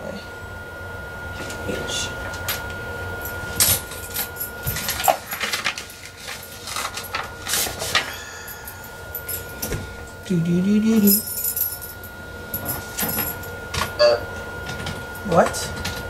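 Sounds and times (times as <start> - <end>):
paper rustling and crinkling: 4.7 - 8.0.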